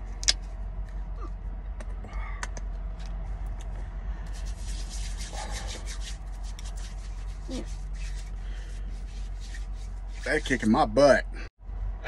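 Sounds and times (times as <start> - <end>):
low rumble in truck cab: 0.0 - 12.0
hands rubbing together: 4.3 - 10.7.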